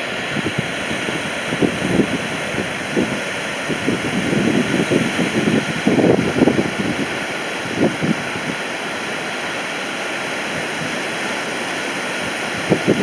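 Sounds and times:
surf breaking on a beach: 0.0 - 13.0
wind buffeting the microphone: 0.0 - 13.0.

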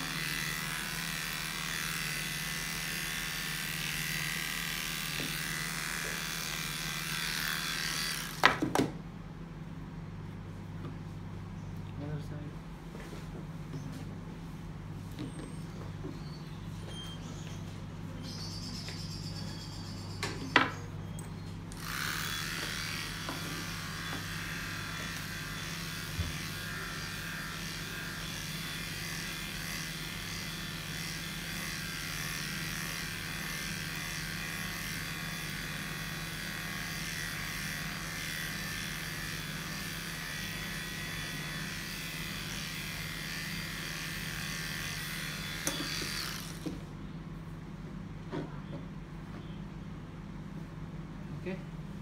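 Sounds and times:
electric clippers running: 0.0 - 9.0, 21.6 - 47.0.

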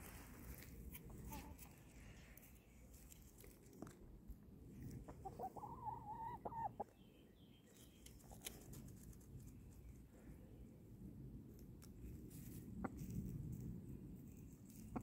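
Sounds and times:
chicken clucking: 1.0 - 1.9, 4.9 - 7.1.

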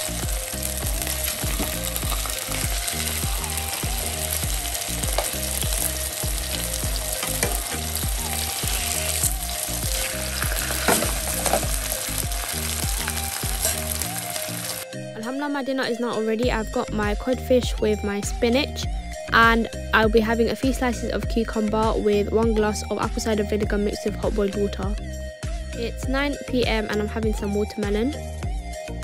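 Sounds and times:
fish sizzling in oil: 0.0 - 14.8
spatula moving fish: 1.3 - 14.8.

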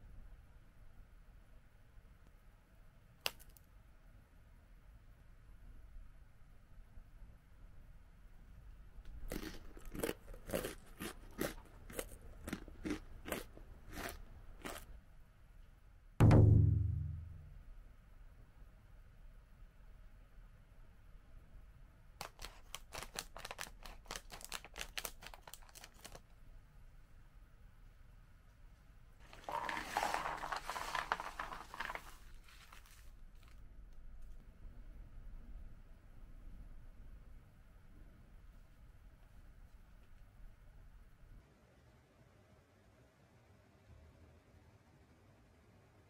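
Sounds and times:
crunchy crackers being chewed: 9.1 - 15.0, 22.2 - 26.2
bag crinkling: 22.2 - 26.2, 29.2 - 33.6.

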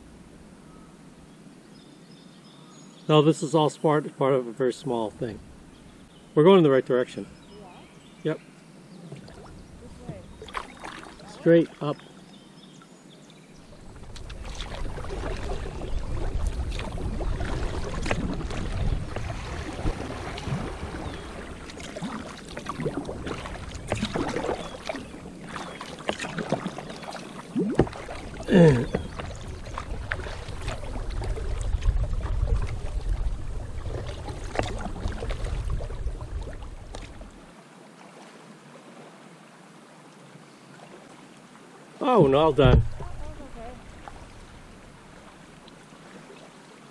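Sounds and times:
paddle strokes splashing: 9.0 - 12.4, 13.5 - 39.2, 42.1 - 46.9
wind buffeting microphone: 13.6 - 25.5, 27.6 - 37.4, 42.5 - 45.2.

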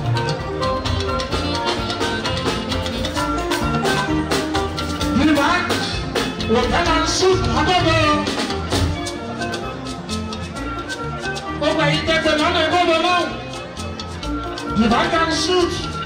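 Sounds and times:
drum kit: 0.0 - 11.5
electric guitars: 0.0 - 16.0
live band playing: 0.0 - 16.0.

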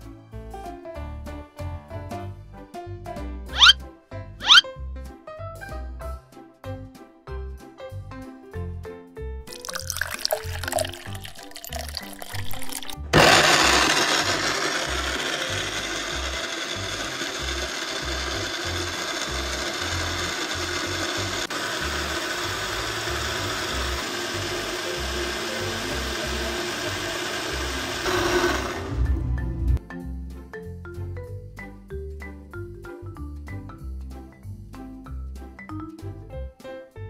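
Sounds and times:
blender grinding corn: 10.5 - 29.2.

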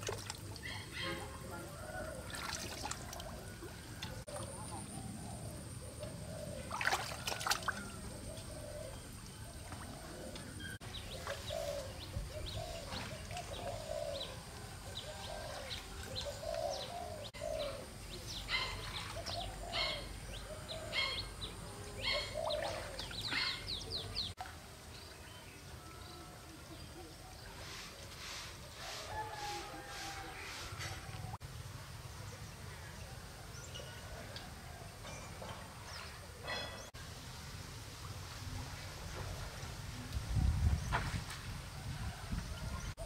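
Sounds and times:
water splashing and trickling: 0.0 - 4.6, 6.6 - 11.6, 12.6 - 14.0, 18.6 - 19.6, 22.4 - 25.8
birds chirping: 3.1 - 24.4.

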